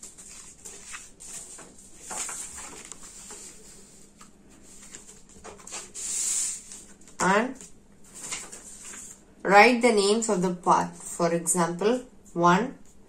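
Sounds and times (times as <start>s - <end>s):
paper rustling and sliding: 0.0s - 9.2s.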